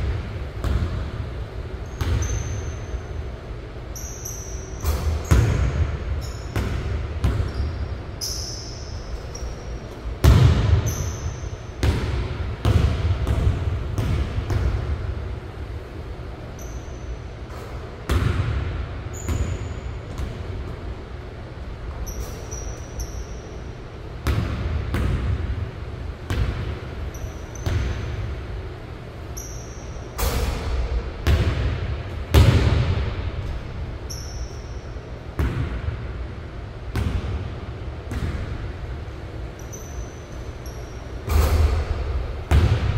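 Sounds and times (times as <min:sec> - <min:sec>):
sneaker squeaks: 0:01.7 - 0:12.2, 0:16.4 - 0:18.1, 0:19.1 - 0:20.8, 0:21.8 - 0:23.8, 0:26.3 - 0:28.4, 0:29.1 - 0:31.0, 0:33.4 - 0:35.2, 0:39.3 - 0:42.9
basketball bouncing on hardwood floor: 0:10.2 - 0:11.2, 0:11.8 - 0:14.9, 0:31.2 - 0:33.6, 0:42.5 - 0:42.9.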